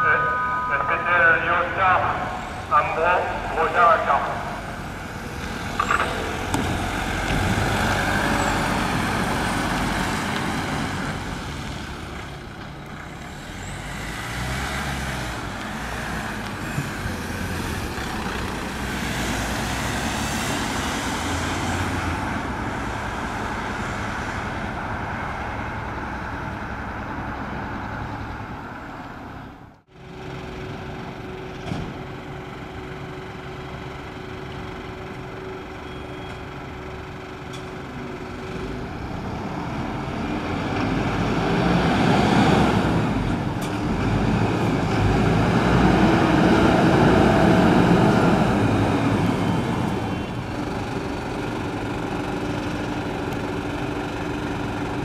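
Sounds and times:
ambulance driving off: 0.0 - 55.0
heavy engine idling: 29.9 - 39.4, 47.0 - 55.0.

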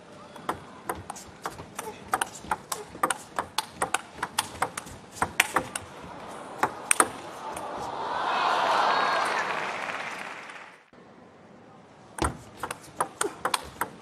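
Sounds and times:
table tennis ball taps: 0.4 - 5.9, 12.2 - 14.0
crowd applause and cheering: 5.9 - 10.9.

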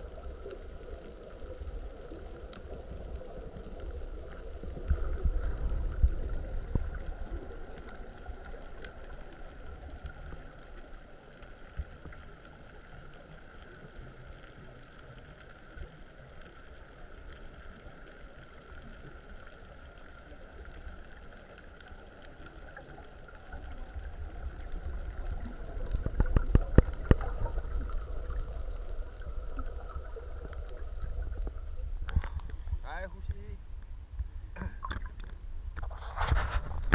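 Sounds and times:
muffled underwater rumble: 0.0 - 36.9.

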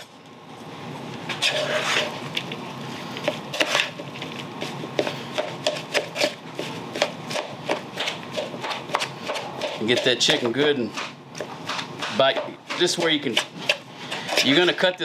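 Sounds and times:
metal spoon scraping a bowl: 1.3 - 2.2, 12.8 - 14.9.

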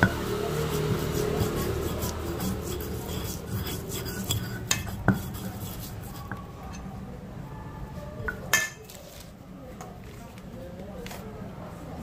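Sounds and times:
dishes and utensils clinking: 0.0 - 6.9, 8.3 - 9.0.

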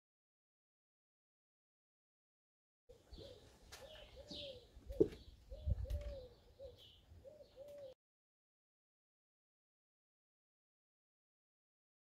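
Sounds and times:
dove cooing: 3.0 - 8.0.

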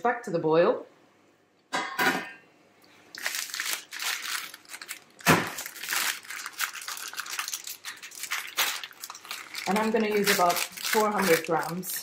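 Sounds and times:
pasta packet tearing and crinkling: 3.1 - 12.0.

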